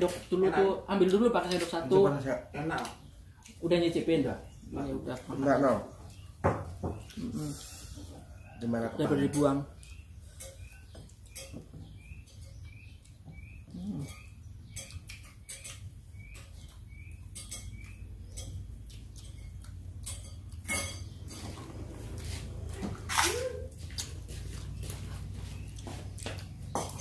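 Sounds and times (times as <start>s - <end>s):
small bird chirping: 1.0s - 27.0s
plates and cutlery clinking: 8.8s - 12.6s, 13.8s - 23.5s.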